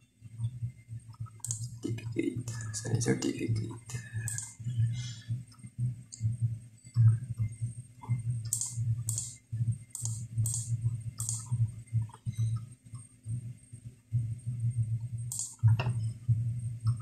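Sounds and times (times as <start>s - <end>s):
low hum: 0.0s - 17.0s
computer mouse clicking: 1.1s - 1.9s, 4.2s - 4.6s, 7.0s - 13.1s, 15.3s - 16.1s.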